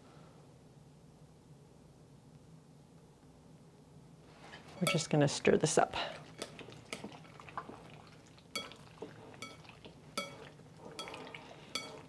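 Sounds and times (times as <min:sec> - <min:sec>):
chopsticks stirring marinade: 0:04.6 - 0:12.0
chopsticks clinking on bowl: 0:04.8 - 0:05.1, 0:08.6 - 0:12.0.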